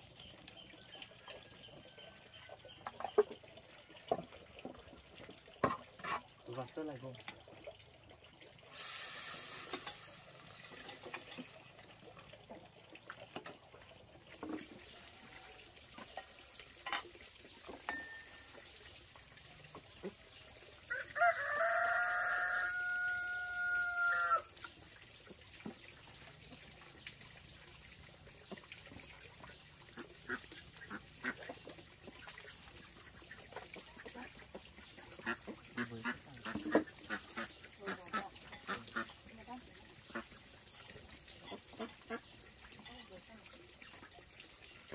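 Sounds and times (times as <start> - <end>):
rooster crowing: 20.9 - 24.5.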